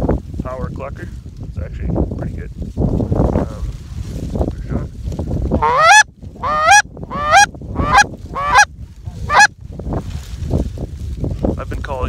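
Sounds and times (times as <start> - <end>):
goose call honks: 5.6 - 8.7, 9.3 - 9.5.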